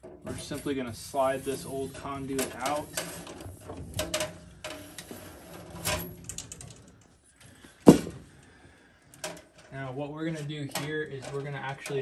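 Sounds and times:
metal conduit scraping and rattling: 0.0s - 7.1s, 9.2s - 12.0s
loud knock: 7.9s - 8.2s.

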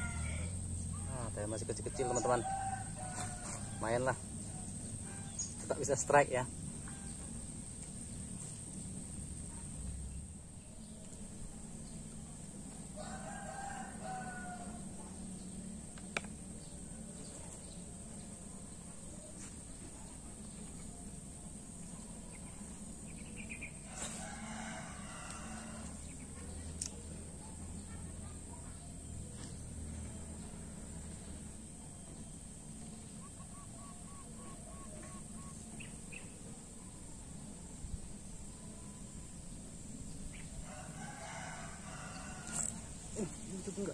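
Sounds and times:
rooster crowing: 0.0s - 0.6s, 1.8s - 4.1s, 12.9s - 15.1s, 23.8s - 26.1s, 40.6s - 43.0s
low background hum: 0.0s - 43.9s.

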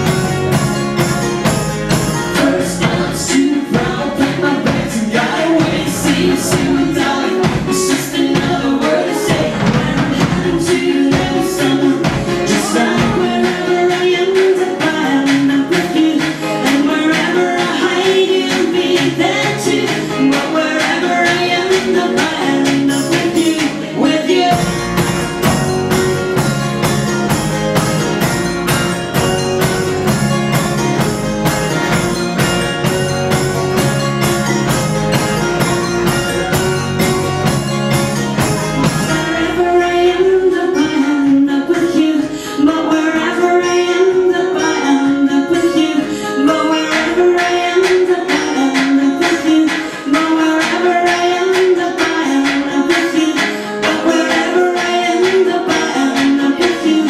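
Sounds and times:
percussion beat: 0.0s - 40.3s, 46.4s - 57.0s
bass line: 0.0s - 41.0s
person singing: 1.9s - 27.4s, 35.1s - 57.0s.

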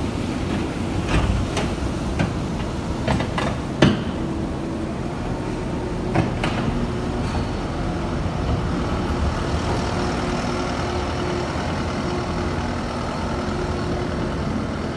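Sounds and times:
diesel engine running: 0.0s - 14.9s
sharp knocks: 3.0s - 4.2s.

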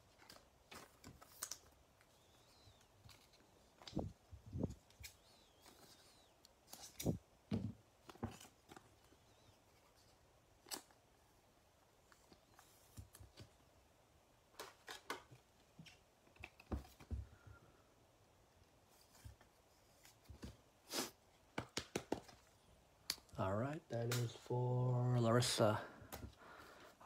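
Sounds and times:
card handling clicks and taps: 21.5s - 22.4s.

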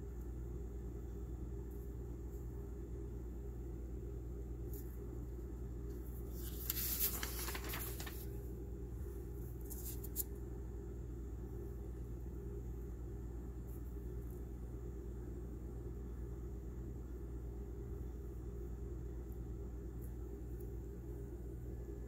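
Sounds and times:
low room hum: 0.0s - 22.0s
brief rustle: 6.4s - 8.3s.

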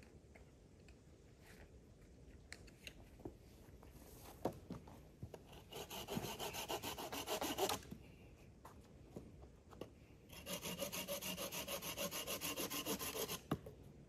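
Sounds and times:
hand saw cutting wood: 5.5s - 7.9s, 10.3s - 13.5s.

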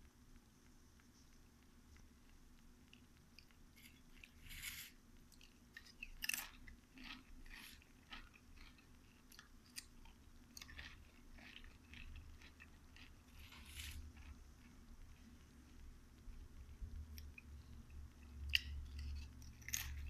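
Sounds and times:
chips crunching: 3.8s - 14.2s.

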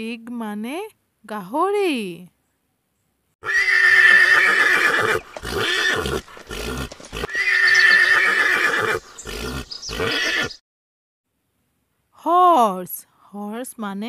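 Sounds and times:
horse whinnying: 3.4s - 10.6s.

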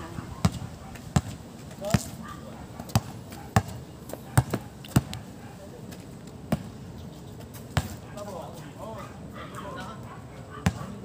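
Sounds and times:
basketball bouncing on concrete: 0.4s - 2.2s, 2.9s - 5.2s, 6.5s - 6.7s, 7.7s - 8.0s, 10.6s - 10.8s.

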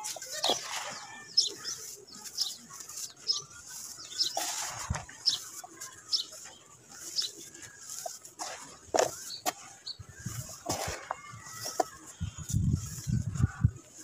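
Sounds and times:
wet scrape: 0.0s - 12.2s
hands rubbing wet dirt: 0.0s - 14.0s.

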